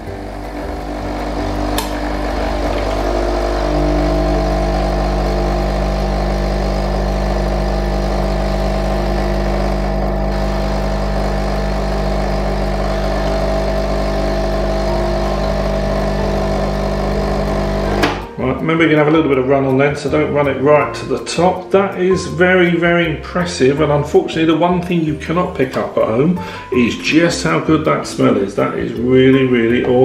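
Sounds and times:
coffee machine pump humming: 0:00.0 - 0:18.4.

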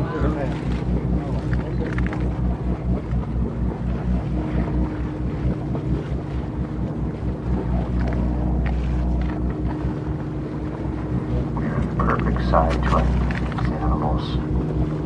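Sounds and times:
boat engine humming: 0:00.0 - 0:15.0.

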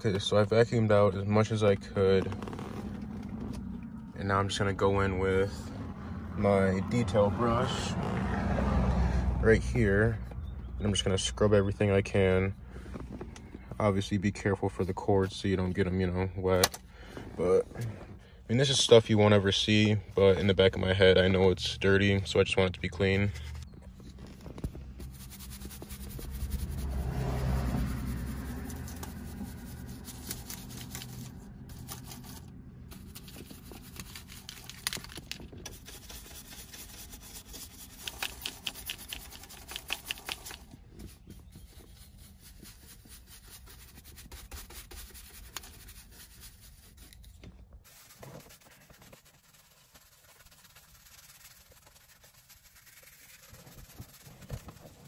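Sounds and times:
brush scrubbing carpet: 0:25.0 - 0:31.2, 0:32.9 - 0:47.1, 0:47.9 - 0:55.0.

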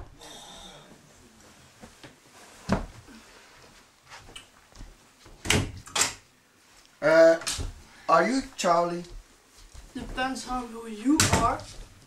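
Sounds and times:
footsteps: 0:07.5 - 0:12.0.

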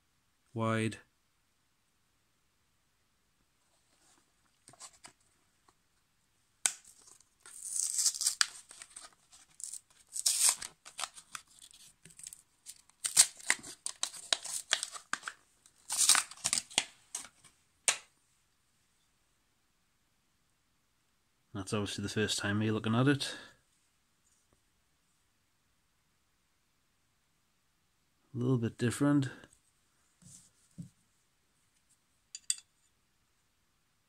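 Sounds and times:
card backing ripping: 0:06.7 - 0:17.4.

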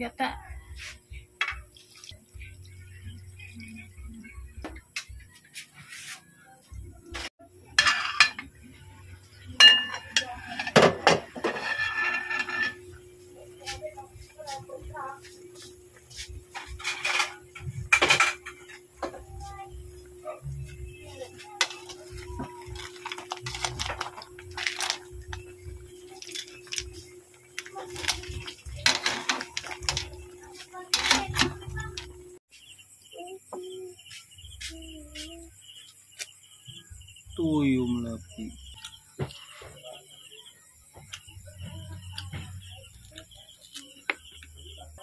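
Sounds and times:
metal pot lid clanking: 0:07.7 - 0:08.5, 0:09.6 - 0:12.8
spoon stirring shells in pot: 0:25.9 - 0:31.4.

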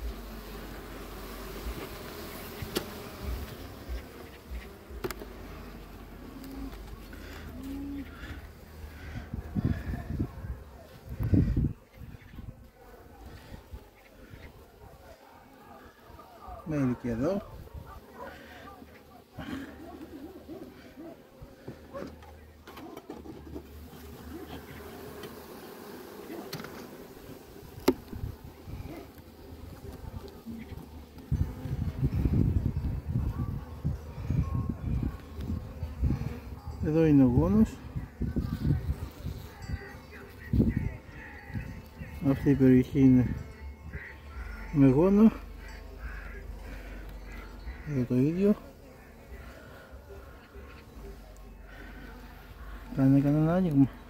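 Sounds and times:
honeybees buzzing: 0:00.0 - 0:54.0
hive tool clicking on wood: 0:02.6 - 0:03.0, 0:05.0 - 0:05.2.

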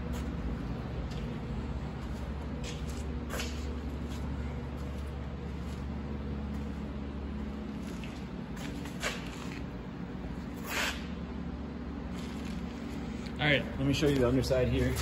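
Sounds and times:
low room hum: 0:00.0 - 0:15.0
short hissing scuffs: 0:10.6 - 0:11.2.

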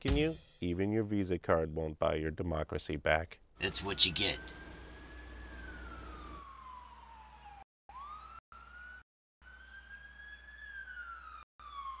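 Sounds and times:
police siren wailing: 0:03.6 - 0:12.0.

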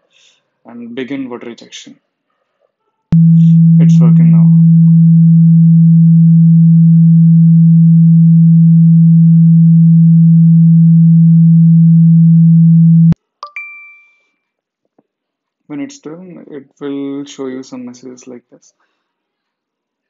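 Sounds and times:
phone speaker low tone: 0:03.2 - 0:13.2.

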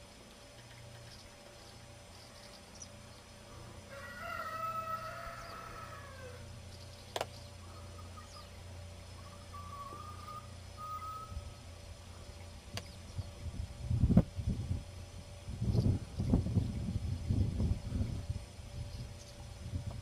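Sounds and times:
rooster crowing: 0:03.8 - 0:06.6.

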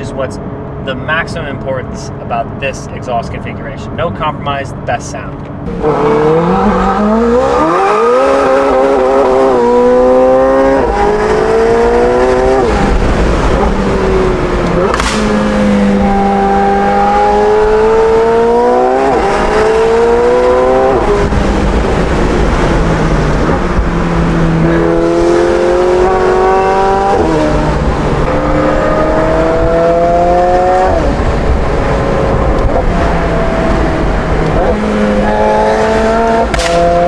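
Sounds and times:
car engine accelerating: 0:05.5 - 0:37.0.

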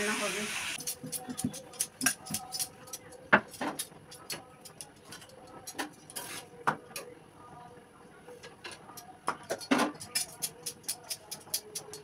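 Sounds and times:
utensils clicking on griddle: 0:00.8 - 0:07.1, 0:09.0 - 0:12.0.

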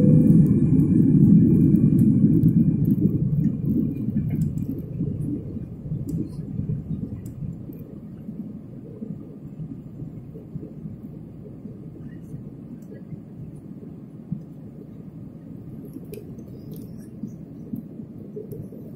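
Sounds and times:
jet engine rumble and rushing air: 0:00.0 - 0:18.9.

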